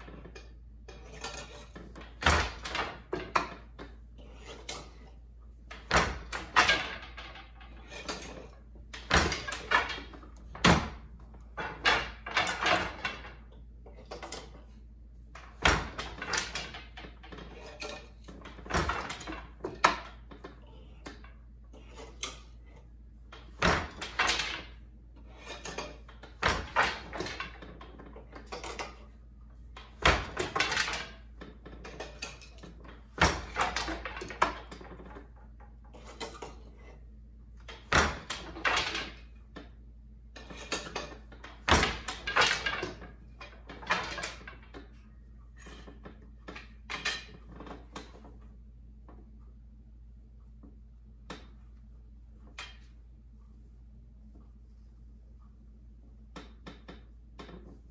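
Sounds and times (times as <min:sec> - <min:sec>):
loom beater knocking: 0:00.0 - 0:14.7, 0:15.4 - 0:22.7, 0:23.3 - 0:29.1, 0:29.7 - 0:36.7, 0:37.7 - 0:39.8, 0:40.4 - 0:48.4
shuttle sliding and clattering: 0:00.0 - 0:49.4
wooden loom parts rattling: 0:00.0 - 0:49.4, 0:50.5 - 0:53.0, 0:56.3 - 0:57.9.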